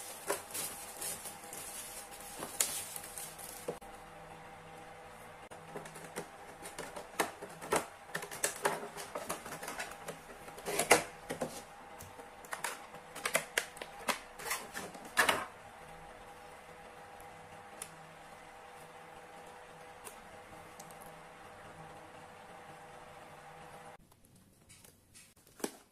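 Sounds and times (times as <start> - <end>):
plastic bag crinkling: 0.0 - 3.8.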